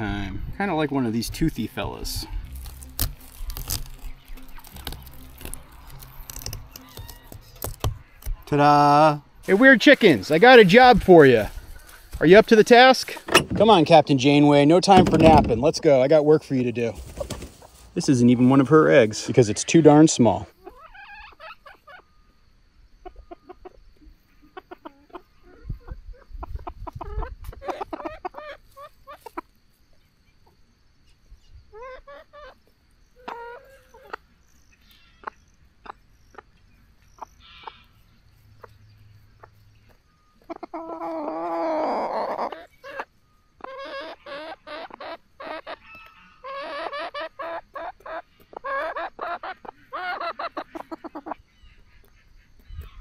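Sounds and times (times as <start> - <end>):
chickens squawking: 9.5 - 17.9, 19.1 - 22.2, 23.0 - 29.6, 31.7 - 53.0
chickens clucking: 9.5 - 29.6, 31.7 - 53.0.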